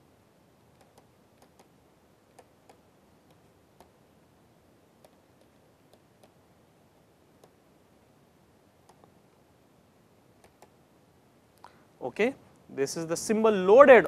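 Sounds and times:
stylus tapping on tablet screen: 0.7s - 4.0s, 5.0s - 6.4s.

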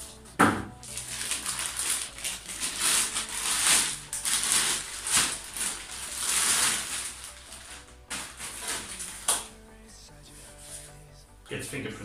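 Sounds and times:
plastic bag and foam crinkling: 0.7s - 9.6s.

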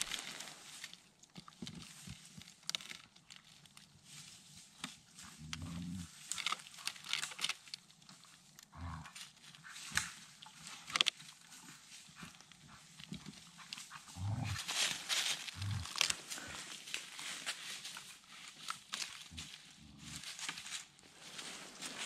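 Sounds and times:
dry leaves rustling: 0.0s - 22.0s
dog growling: 5.6s - 6.1s, 14.0s - 14.8s.

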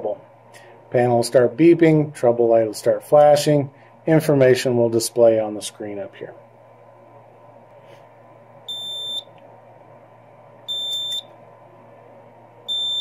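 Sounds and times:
high-pitched alarm beeps: 8.7s - 9.3s, 10.7s - 11.4s, 12.7s - 13.0s.

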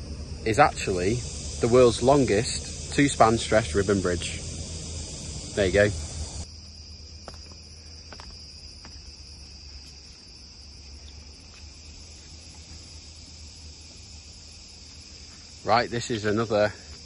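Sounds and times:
low rumble: 0.0s - 6.5s
forest insect chorus: 0.0s - 17.0s.

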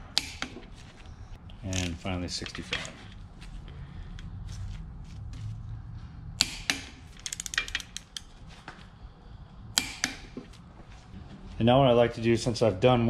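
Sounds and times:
ratchet clicks: 6.4s - 8.3s
torque wrench click: 7.2s - 8.3s.

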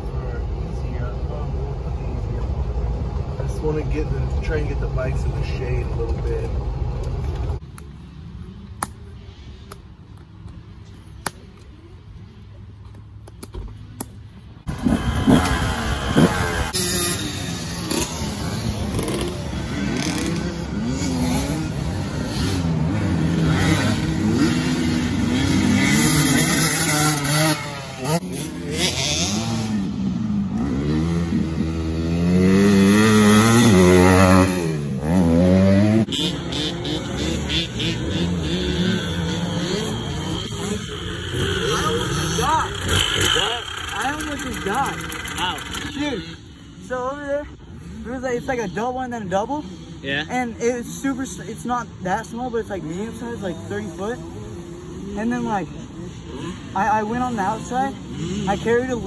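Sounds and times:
dirt bike engine revving: 14.7s - 46.8s, 52.8s - 59.0s.

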